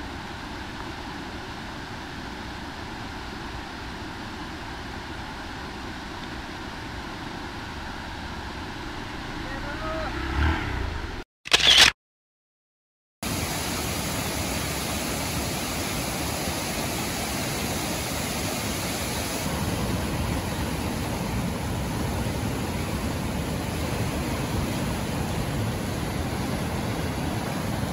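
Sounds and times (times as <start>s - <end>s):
rushing water from waterfall: 13.2s - 27.9s.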